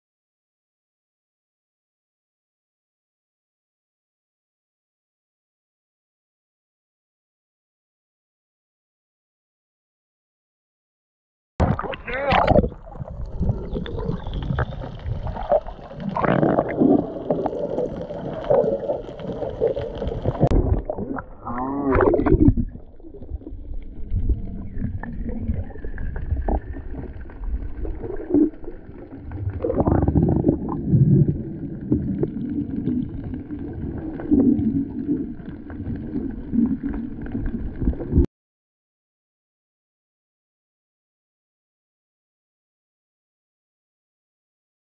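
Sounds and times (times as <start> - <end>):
water sloshing and gurgling: 11.6 - 38.3.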